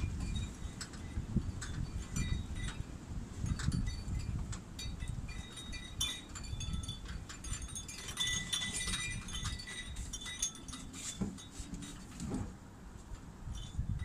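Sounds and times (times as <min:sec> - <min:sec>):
metallic clinking and chiming: 0:03.6 - 0:11.6.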